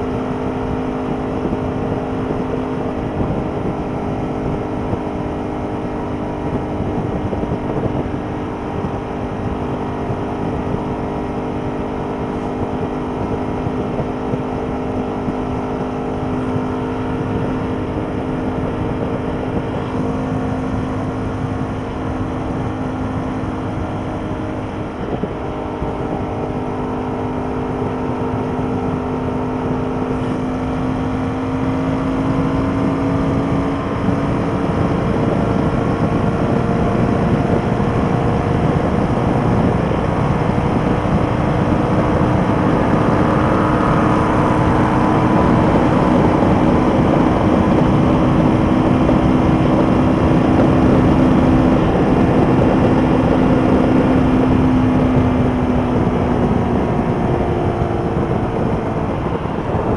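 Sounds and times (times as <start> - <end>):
motorcycle engine at speed: 0.0 - 59.9
wind and road rush: 0.0 - 59.9.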